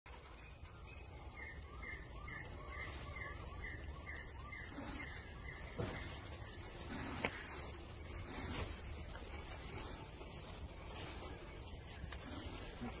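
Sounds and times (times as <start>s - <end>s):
outdoor background noise: 0.1s - 13.0s
bird chirping call: 0.3s - 8.6s.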